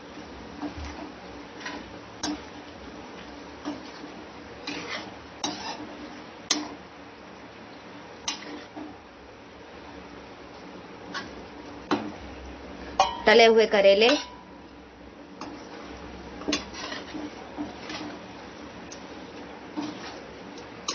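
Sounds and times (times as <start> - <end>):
steel spatula scraping metal pan: 4.6 - 6.0, 8.3 - 8.8, 14.0 - 14.4, 15.4 - 18.2, 19.8 - 20.9.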